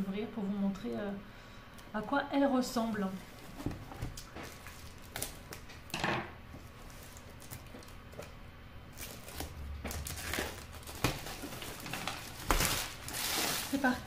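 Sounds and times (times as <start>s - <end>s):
plastic shrink-wrap crinkling: 4.2s - 5.7s, 6.6s - 8.2s, 8.9s - 14.0s.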